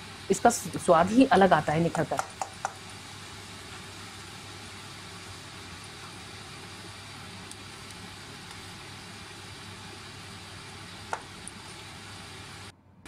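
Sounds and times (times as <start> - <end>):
low hum and hiss: 0.0 - 13.0
wooden spatula ticking in a pan: 1.9 - 2.8.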